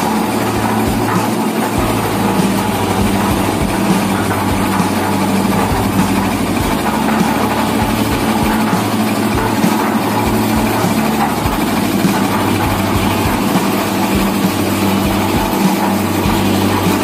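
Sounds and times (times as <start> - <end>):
concrete mixer running: 0.0 - 17.0.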